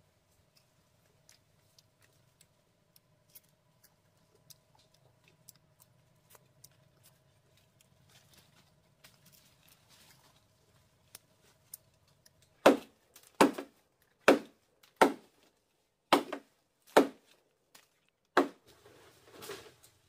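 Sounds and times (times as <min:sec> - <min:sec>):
blade chopping wood: 0:12.6 - 0:15.3, 0:16.1 - 0:17.3, 0:18.4 - 0:18.6.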